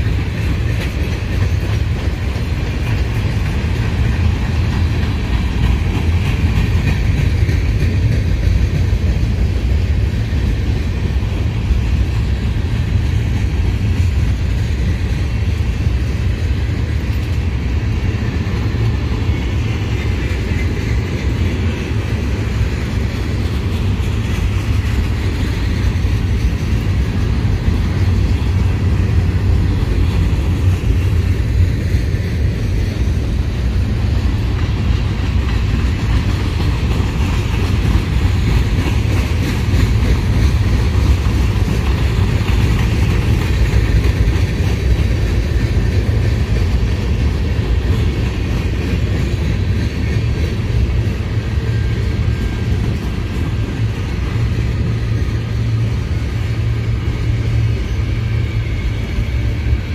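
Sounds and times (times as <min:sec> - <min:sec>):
freight train wheels rumbling: 0:00.0 - 0:59.9.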